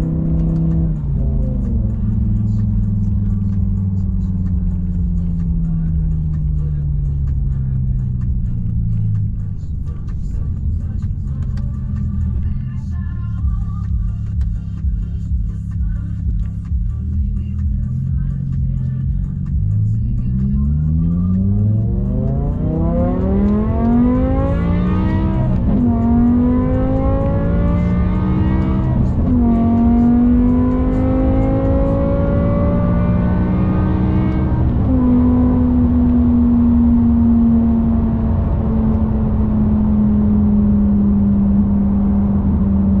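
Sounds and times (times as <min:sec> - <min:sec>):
car engine accelerating: 0:00.0 - 0:43.0.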